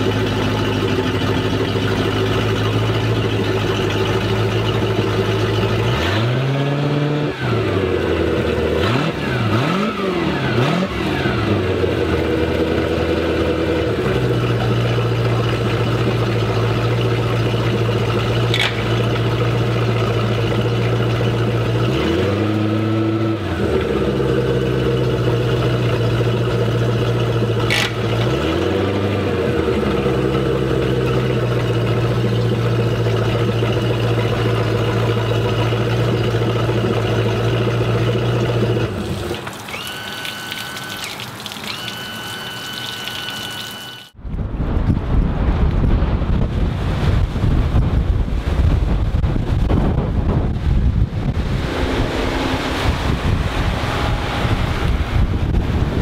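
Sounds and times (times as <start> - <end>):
boat engine idling and revving: 0.0 - 56.0
water discharging: 9.5 - 44.2, 50.8 - 56.0.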